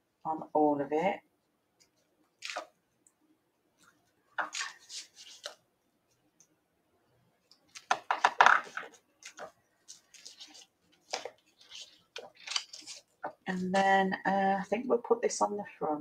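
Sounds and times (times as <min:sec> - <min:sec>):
paper rustling and scraping: 0:04.4 - 0:05.6, 0:07.7 - 0:13.8.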